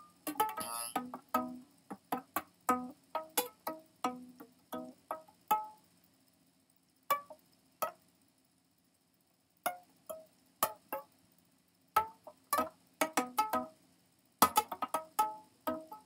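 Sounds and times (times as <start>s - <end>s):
plucked guitar notes: 0.0s - 5.7s.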